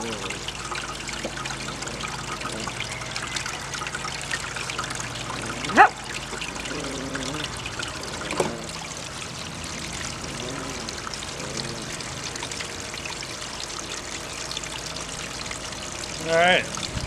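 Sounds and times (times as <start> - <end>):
water running down a metal sluice: 0.0 - 17.0.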